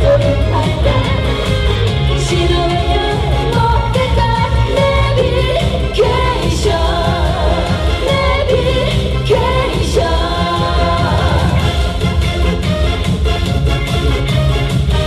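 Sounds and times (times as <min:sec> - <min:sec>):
woman singing into microphone: 0:00.0 - 0:11.7
backing track with steady beat: 0:00.0 - 0:15.0.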